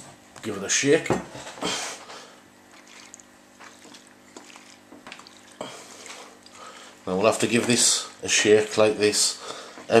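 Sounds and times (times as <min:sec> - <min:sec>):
liquid sloshing in glass jar: 0:02.7 - 0:06.6.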